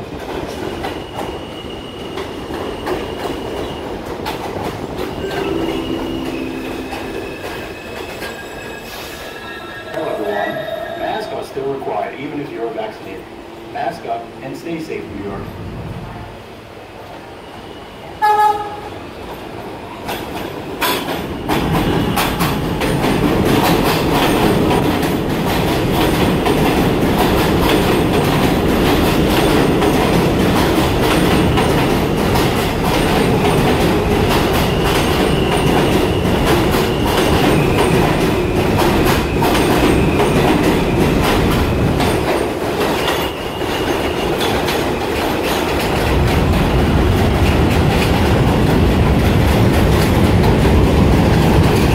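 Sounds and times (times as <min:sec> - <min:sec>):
subway train rumbling: 0:00.0 - 0:51.9
high wheel squeal: 0:05.1 - 0:11.6, 0:43.0 - 0:44.5
subway train horn blast: 0:05.2 - 0:09.1, 0:18.2 - 0:19.1.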